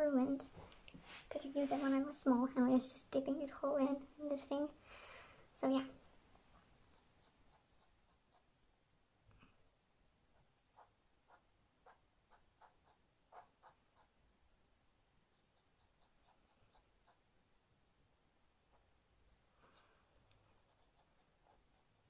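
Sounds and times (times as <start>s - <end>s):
pen nib scratching paper: 6.9s - 8.7s, 10.3s - 14.2s, 15.3s - 17.3s, 20.4s - 22.0s.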